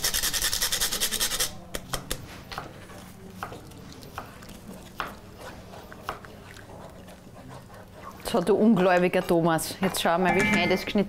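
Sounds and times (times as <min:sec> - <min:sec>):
spoon knocking and scraping cookware: 0:09.2 - 0:11.0.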